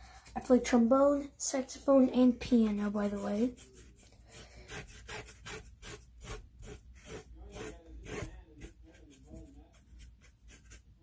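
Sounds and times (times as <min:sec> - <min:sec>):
paintbrush scrubbing on board: 0:02.7 - 0:10.9.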